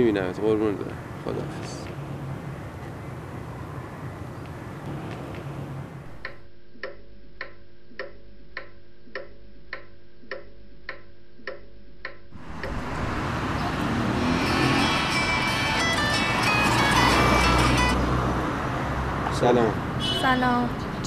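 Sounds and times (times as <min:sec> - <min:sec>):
outdoor background noise: 0:00.0 - 0:21.0
pendulum clock ticking: 0:06.0 - 0:12.8.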